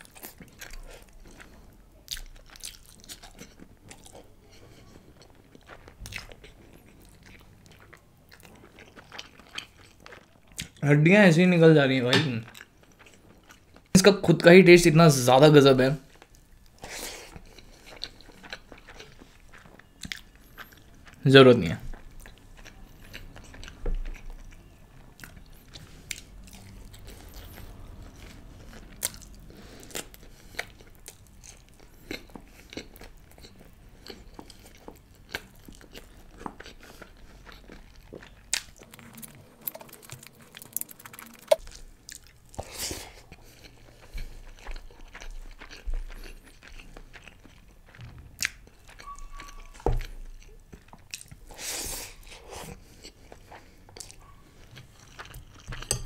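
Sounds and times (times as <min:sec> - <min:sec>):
chewing and biting: 0:00.0 - 0:10.8, 0:16.1 - 0:21.2, 0:21.8 - 0:56.0
wet mouth clicks and smacks: 0:39.7 - 0:42.2.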